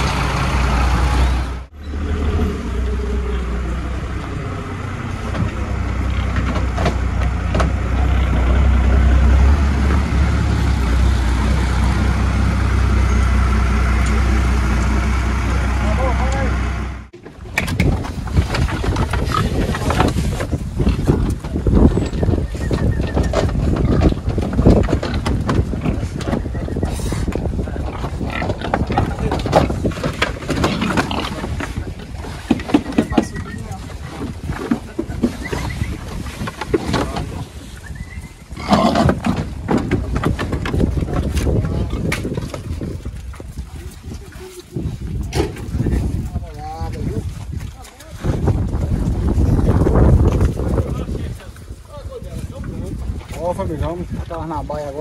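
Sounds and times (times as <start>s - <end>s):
truck engine idling: 0.0s - 17.2s
pigs grunting: 18.6s - 20.1s, 20.8s - 42.5s
low rumble: 33.2s - 54.5s.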